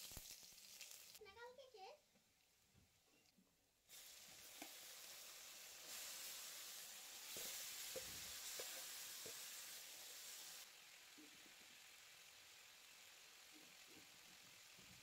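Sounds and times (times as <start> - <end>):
vegetables sizzling in hot oil: 0.0 - 1.7, 3.9 - 15.0
spatula tapping pan: 7.3 - 9.5.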